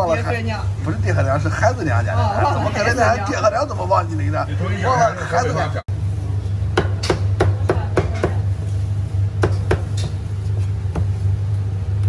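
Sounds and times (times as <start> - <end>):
steady low hum: 0.0 - 12.0
cleaver chopping on wooden block: 6.8 - 8.4.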